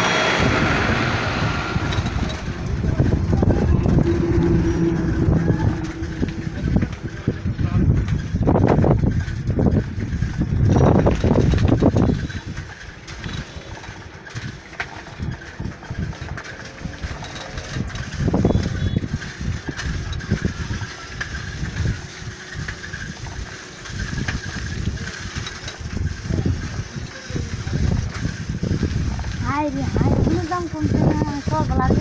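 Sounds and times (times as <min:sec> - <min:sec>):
truck diesel engines idling: 0:00.0 - 0:08.4.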